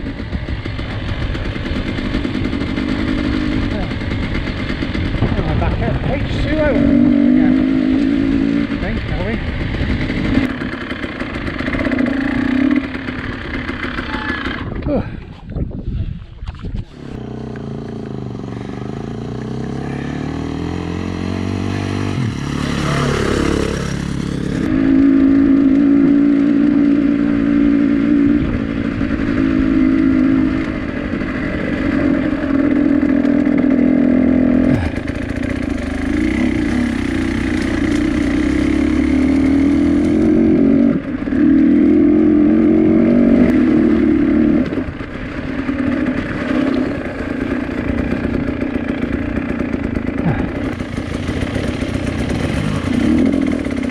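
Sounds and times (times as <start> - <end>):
vehicle engine revving high: 17.0 - 45.0.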